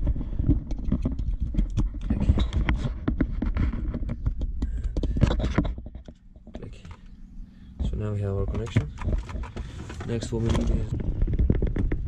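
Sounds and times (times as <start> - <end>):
handling clicks and rustling: 7.8 - 12.0.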